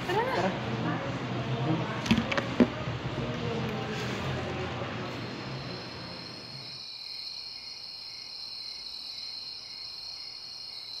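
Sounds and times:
crickets trilling: 5.1 - 11.0
low pulsing insect chirp: 5.2 - 11.0.

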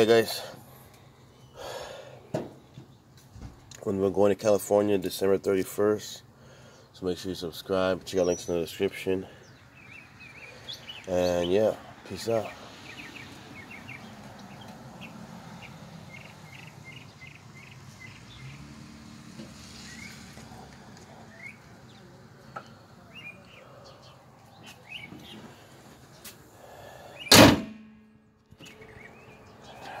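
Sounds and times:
birds chirping: 0.0 - 27.5, 28.3 - 30.0
low outdoor background: 0.0 - 30.0
car hood slamming shut: 27.3 - 27.8.

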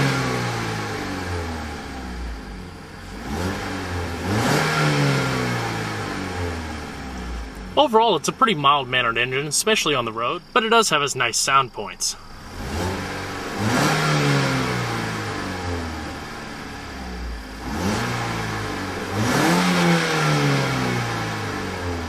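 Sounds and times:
car engine revving: 0.0 - 22.0.

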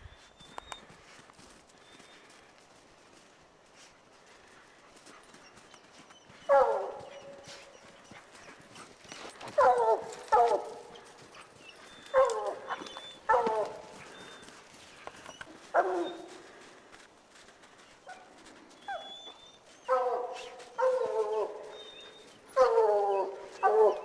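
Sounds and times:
hounds barking: 5.1 - 16.7, 18.0 - 24.0.

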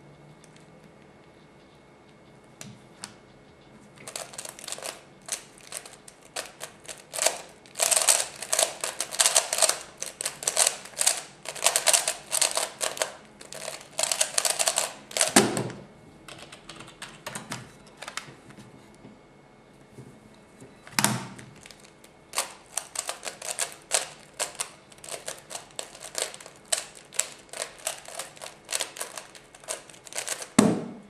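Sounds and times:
plastic puzzle cube clacking: 4.1 - 15.4, 22.4 - 30.6.

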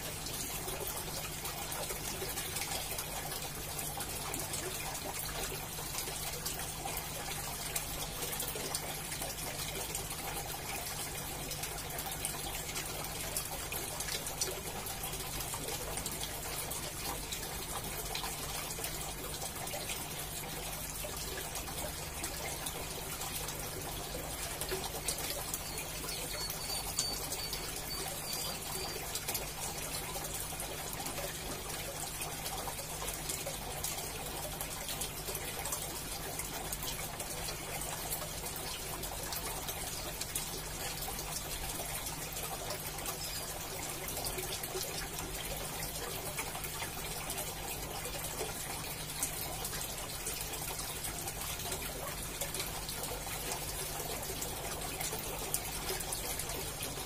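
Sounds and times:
aquarium air stone bubbling: 0.0 - 57.0.

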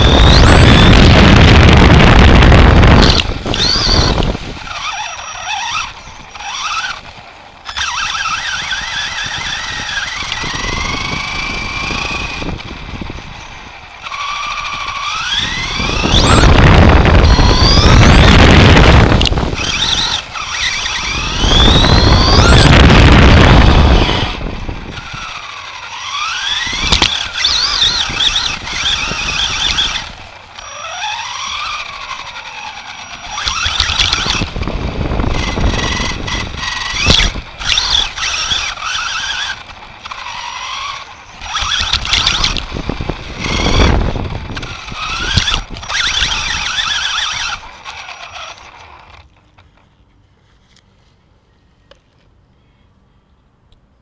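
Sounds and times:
electric motor whining: 0.0 - 49.8
toy truck chassis knocking ground: 17.4 - 49.4.

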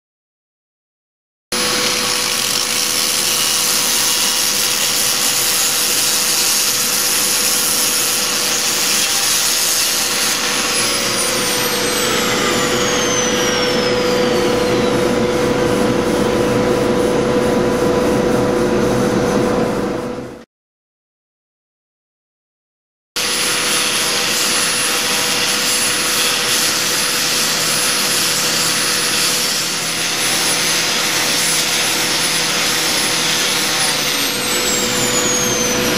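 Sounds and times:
angle grinder grinding tile: 1.6 - 16.8, 23.2 - 35.9.

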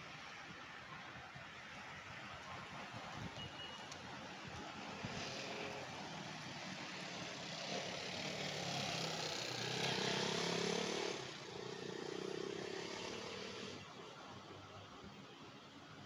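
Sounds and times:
motorcycle engine passing by: 7.0 - 13.8.

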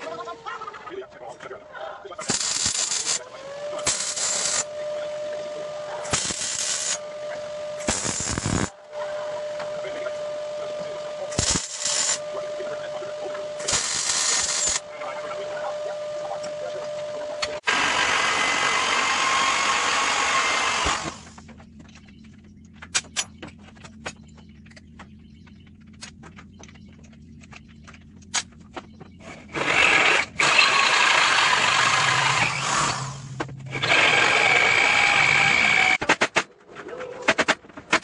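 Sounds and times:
electric drill boring through steel: 2.2 - 9.8, 10.7 - 12.4, 13.6 - 14.8, 17.6 - 21.4, 29.5 - 36.0.

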